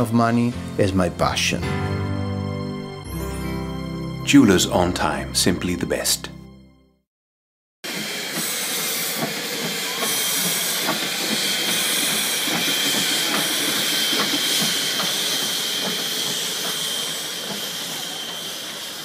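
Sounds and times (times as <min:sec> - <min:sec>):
steam locomotive hissing steam: 0:07.8 - 0:19.0.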